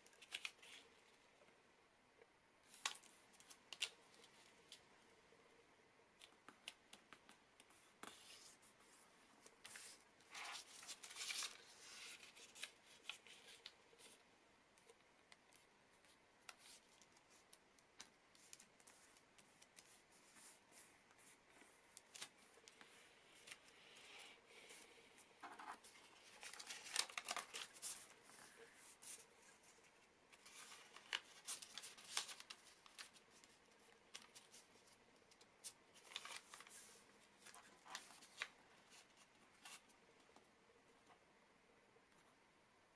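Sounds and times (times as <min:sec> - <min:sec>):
paper rustling and crinkling: 0:00.0 - 0:00.9, 0:06.4 - 0:14.2, 0:24.6 - 0:39.9.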